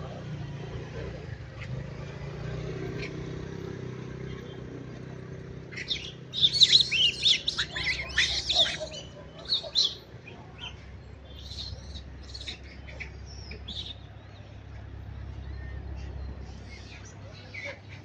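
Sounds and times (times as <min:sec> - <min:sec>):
monkeys screeching: 0:05.7 - 0:14.0.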